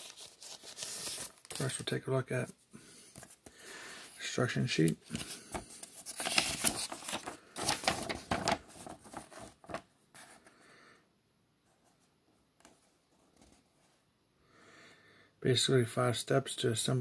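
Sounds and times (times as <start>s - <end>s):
paper rustling and crackling: 0.0s - 2.0s, 4.6s - 10.3s.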